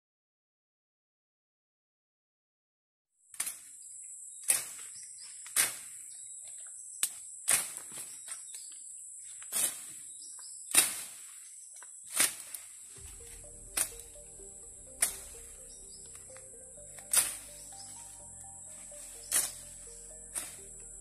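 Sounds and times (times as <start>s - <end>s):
machete slashing undergrowth: 10.7s - 11.3s
high-pitched insect drone: 13.0s - 21.0s.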